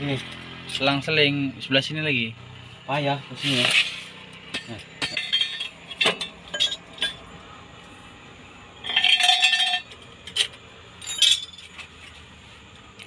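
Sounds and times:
steel tools tapping on metal: 0:04.4 - 0:07.2
ringing metal clatter: 0:04.4 - 0:07.3, 0:08.8 - 0:11.8.

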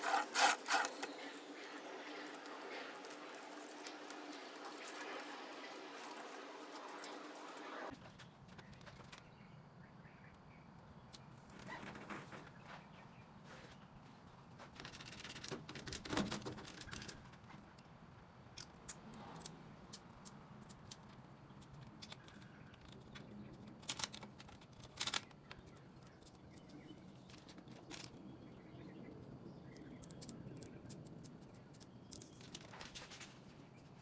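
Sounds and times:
transfer tape crackling and clicking: 0:00.0 - 0:05.4, 0:20.7 - 0:28.2.

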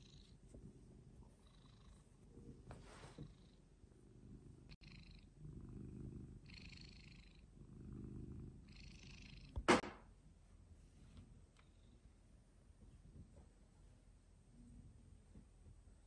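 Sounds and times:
cat purring: 0:00.0 - 0:09.7.

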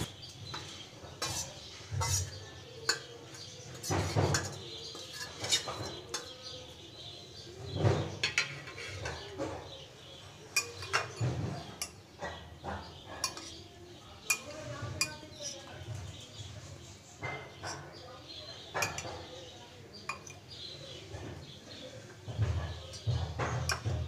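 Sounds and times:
spoon scraping a steel plate: 0:00.2 - 0:06.4, 0:08.1 - 0:09.7, 0:13.2 - 0:13.6.

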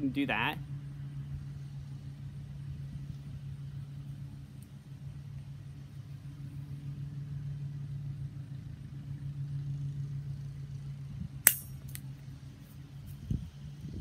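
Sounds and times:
steady low hum: 0:00.0 - 0:14.0
wire cutter snapping wire: 0:11.5 - 0:12.0.

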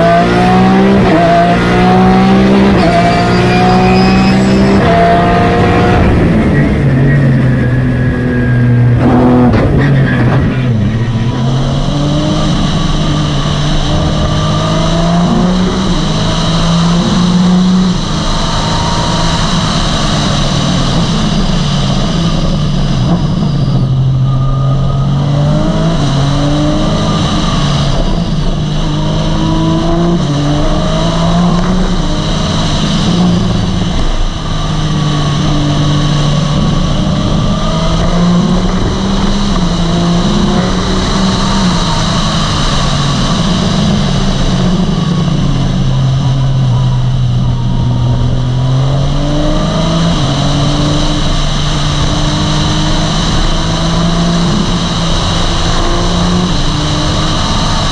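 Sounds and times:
race car engine revving: 0:00.0 - 0:57.9.

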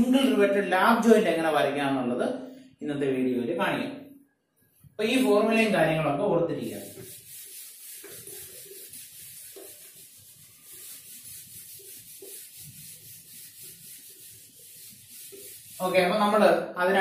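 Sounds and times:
eraser rubbing on whiteboard: 0:06.6 - 0:16.5.

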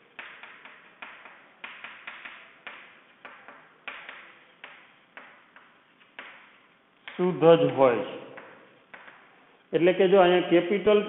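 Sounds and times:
chalk tapping and scratching: 0:00.1 - 0:06.7.

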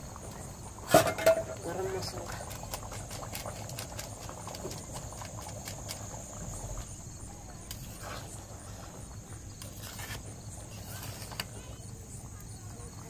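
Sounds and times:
curry boiling with pops and crackles: 0:00.0 - 0:13.0
ladle scraping in a pan: 0:00.8 - 0:06.0, 0:07.6 - 0:11.8.

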